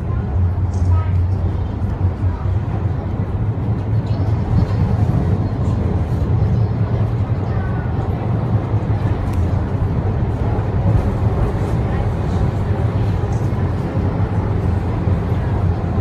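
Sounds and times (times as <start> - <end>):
suspension railway car rumbling: 0.0 - 16.0.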